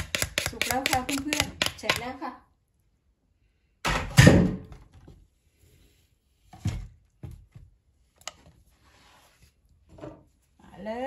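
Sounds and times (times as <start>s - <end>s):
plastic spoon knocking in clay mortar: 0.0s - 2.2s.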